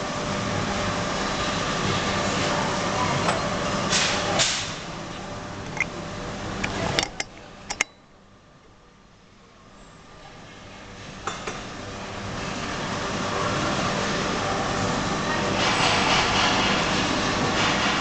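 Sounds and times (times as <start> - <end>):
workshop machinery hum: 0.0 - 18.0
metal clicks and knocks: 5.6 - 5.9, 6.6 - 8.0.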